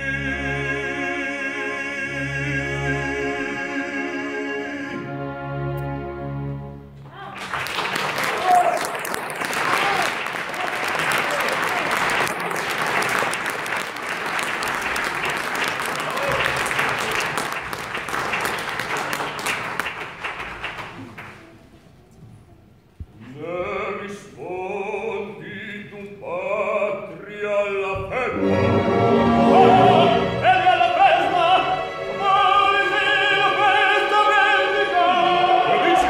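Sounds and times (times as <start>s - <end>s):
male operatic voice singing: 0.0s - 5.4s, 23.2s - 36.0s
opera music with singing: 0.0s - 7.5s, 20.7s - 36.0s
audience applause: 7.2s - 21.7s.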